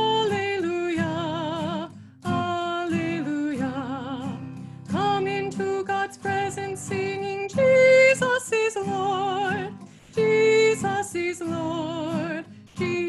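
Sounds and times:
strummed acoustic guitar: 0.0s - 13.0s
woman singing a hymn: 0.0s - 13.0s.

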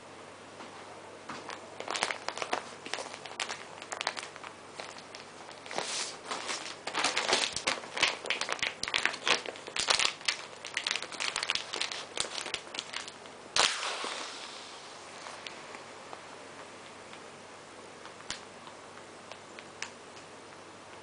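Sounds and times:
plastic packaging crinkling: 1.4s - 16.2s
sudden loud rush of noise: 13.6s - 15.4s.

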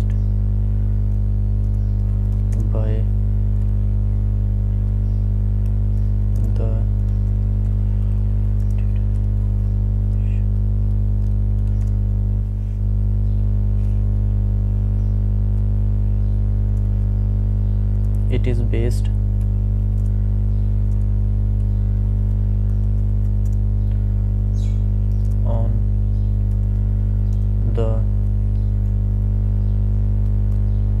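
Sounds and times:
electrical mains hum: 0.0s - 31.0s
keyboard typing clicks: 1.1s - 2.8s, 5.6s - 9.4s, 11.2s - 12.0s, 19.4s - 20.2s, 21.6s - 24.0s, 25.0s - 25.5s, 26.4s - 27.5s.

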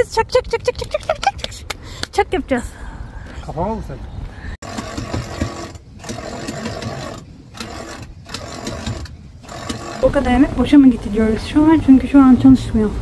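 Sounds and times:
electric winch running: 4.6s - 10.8s.

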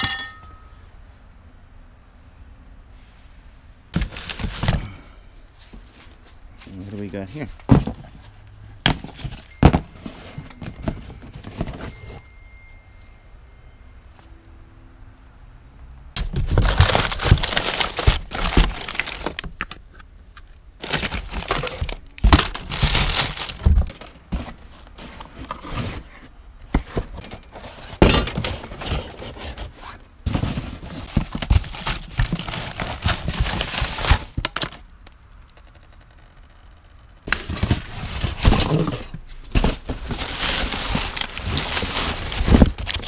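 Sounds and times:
items knocking: 0.0s - 0.7s, 8.8s - 12.2s
paper and cardboard rustling: 4.0s - 5.0s, 5.6s - 12.3s, 16.2s - 20.0s, 20.8s - 34.9s, 37.2s - 43.0s.

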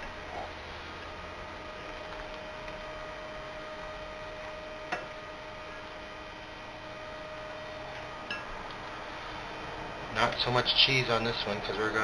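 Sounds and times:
electrical hum: 0.0s - 12.0s
thin constant tone: 2.7s - 12.0s.

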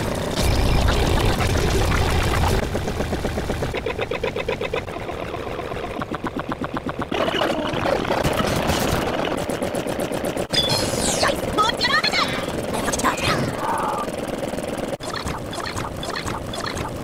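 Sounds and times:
engine-like rapid pulsing: 0.0s - 17.0s
overlapping video soundtracks: 15.0s - 17.0s.

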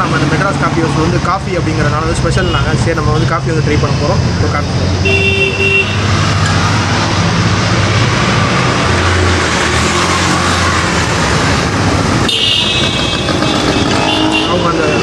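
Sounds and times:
road traffic noise: 0.0s - 15.0s
vehicle engine humming: 0.0s - 15.0s.

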